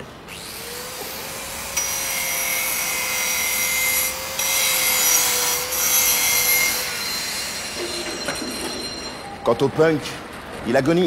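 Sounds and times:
angle grinder cutting metal pipe: 0.3 - 8.2.

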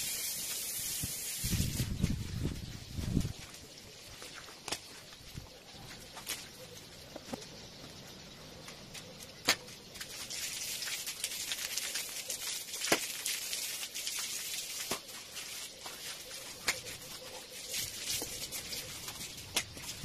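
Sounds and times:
broom scrubbing wet tiled floor: 0.0 - 3.5, 9.0 - 20.0.

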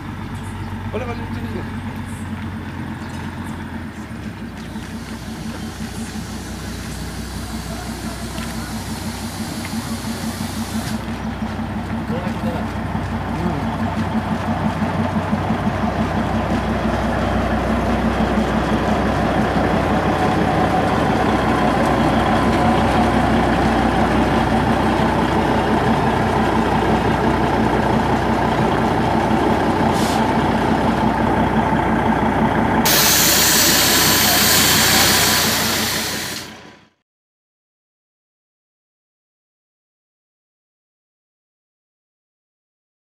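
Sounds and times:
diesel locomotive running: 0.0 - 37.0
bright hiss: 32.9 - 36.6.

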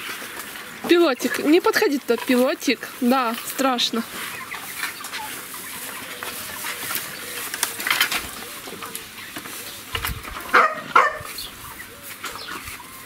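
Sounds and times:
faint farmyard background noise: 0.0 - 13.0
dog barking: 10.5 - 11.3.

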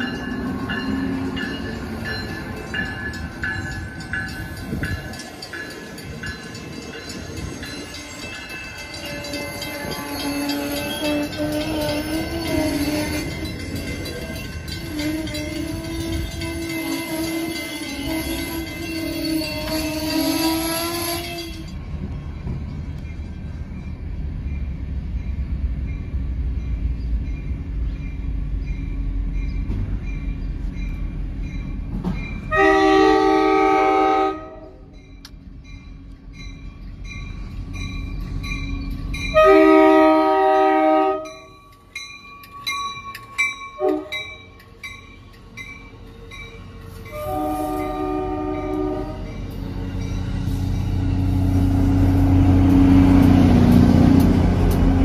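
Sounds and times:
train rumbling on rails: 0.0 - 55.0
multi-chime train horn: 6.0 - 21.8, 32.4 - 35.2, 38.4 - 51.3.

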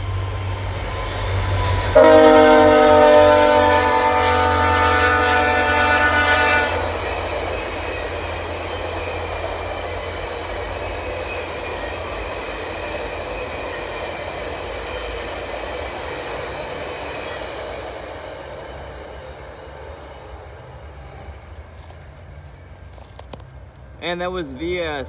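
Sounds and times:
train coaches rumbling on rails: 0.0 - 25.0
locomotive air horn: 1.8 - 7.2.

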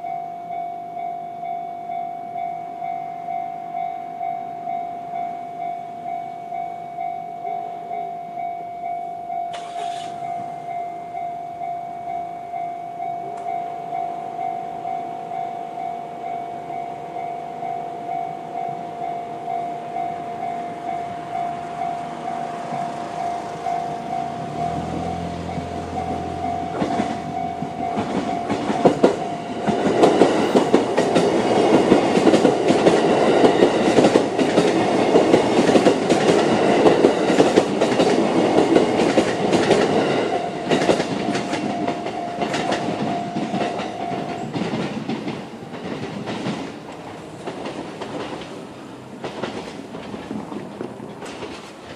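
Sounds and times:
level crossing warning bell: 0.0 - 45.8
train wheels clattering: 21.4 - 51.9.

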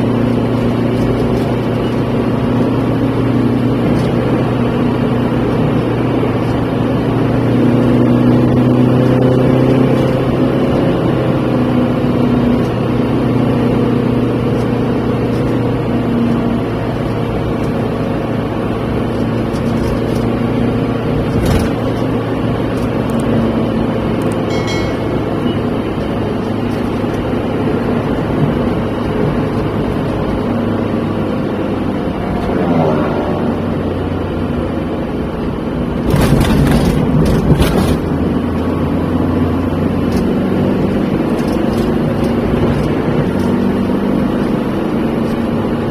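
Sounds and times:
car engine and road noise: 0.0 - 45.9
short rising tone: 24.5 - 26.1.

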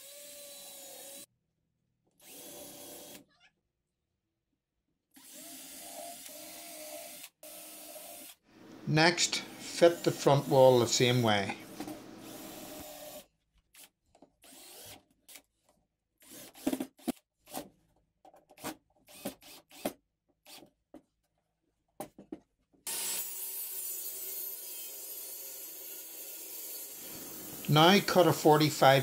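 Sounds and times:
steady hiss: 27.0 - 29.0.

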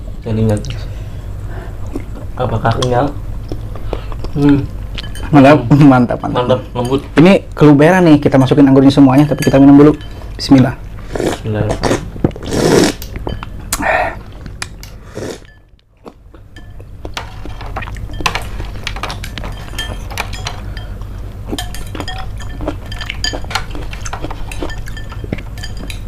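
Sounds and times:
spoons clinking against a bowl: 5.0 - 7.1, 8.9 - 10.6, 13.2 - 13.5, 16.5 - 26.0
slurp from a spoon: 11.2 - 13.0.

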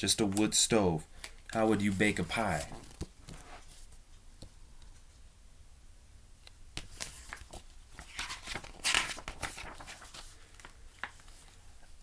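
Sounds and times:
book pages turning: 1.6 - 4.0, 6.8 - 11.7.

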